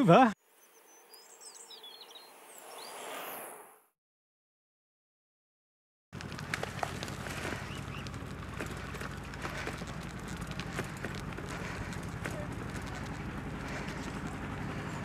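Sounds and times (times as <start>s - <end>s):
bicycle rolling on gravel: 6.2s - 15.0s.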